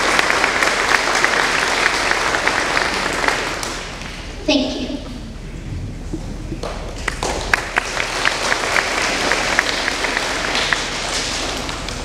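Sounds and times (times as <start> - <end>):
audience applauding: 0.0 - 4.2, 6.6 - 12.0.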